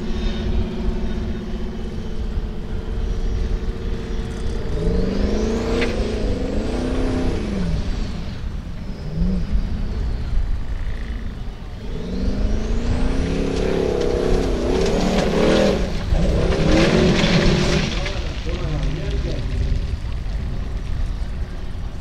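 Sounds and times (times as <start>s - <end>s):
buggy engine revving: 0.0s - 22.0s
high whine: 0.0s - 22.0s.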